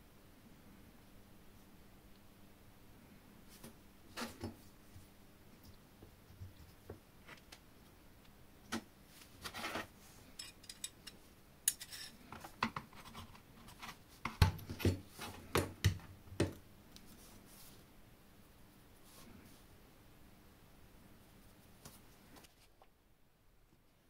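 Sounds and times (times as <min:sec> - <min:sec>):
metal parts clicking and scraping: 0:10.4 - 0:12.2.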